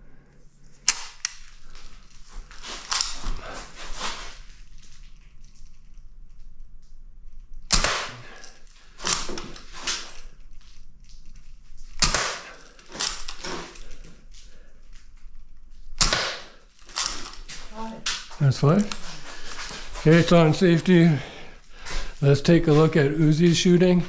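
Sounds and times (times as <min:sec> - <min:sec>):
pistol shot cracks: 0:07.7 - 0:09.4, 0:12.0 - 0:13.2, 0:16.0 - 0:17.2.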